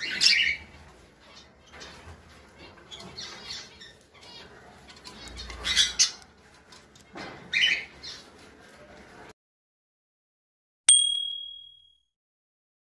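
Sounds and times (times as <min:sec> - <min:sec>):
parrots calling: 0:00.0 - 0:01.6, 0:02.6 - 0:06.4.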